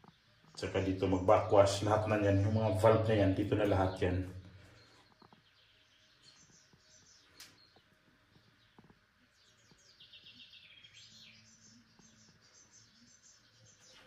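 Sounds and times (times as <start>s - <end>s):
faint birdsong chirps: 0.0s - 14.0s.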